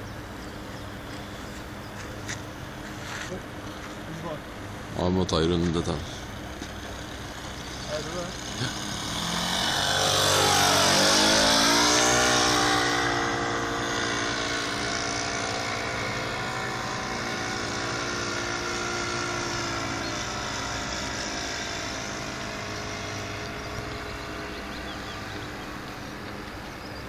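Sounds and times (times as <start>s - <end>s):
model plane engine droning: 6.0s - 27.0s.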